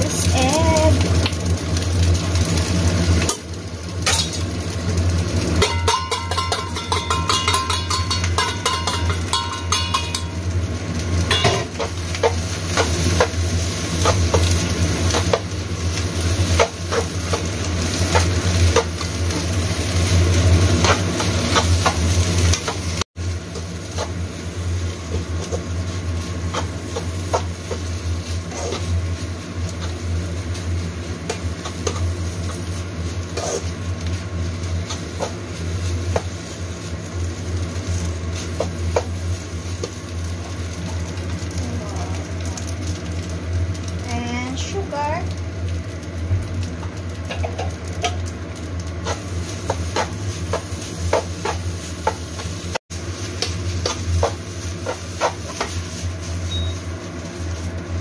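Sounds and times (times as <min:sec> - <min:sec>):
light sizzle: 0:00.0 - 0:58.0
metal spatula scraping a pan: 0:33.3 - 0:33.8.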